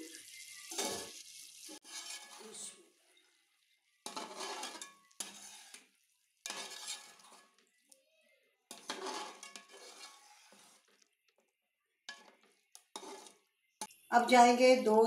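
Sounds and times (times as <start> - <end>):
spatula scraping metal pot: 0.6 - 2.8, 4.0 - 7.6, 8.7 - 11.1, 12.1 - 13.9.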